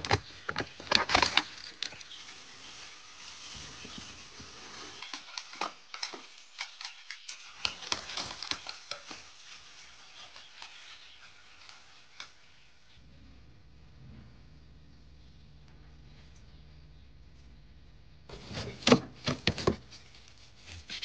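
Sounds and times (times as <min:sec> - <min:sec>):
bamboo and dry leaves rustling: 0:00.0 - 0:13.0.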